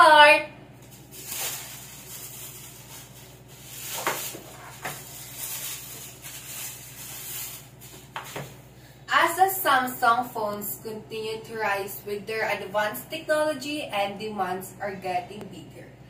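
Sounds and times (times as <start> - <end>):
plastic bag rustling: 0.8 - 8.7.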